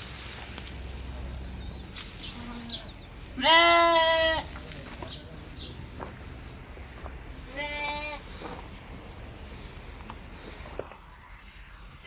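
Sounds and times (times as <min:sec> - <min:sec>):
lamb bleating: 0:03.4 - 0:04.5, 0:07.5 - 0:08.3.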